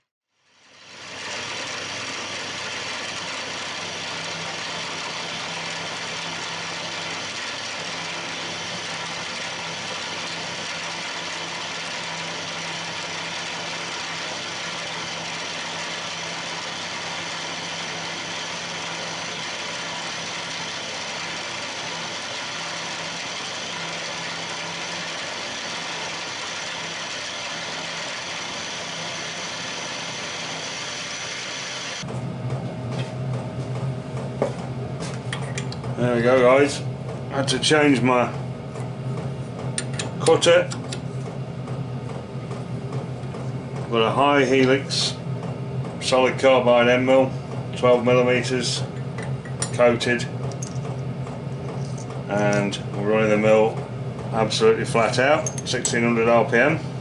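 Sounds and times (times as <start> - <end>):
milling machine cutting metal: 0.6 - 32.1.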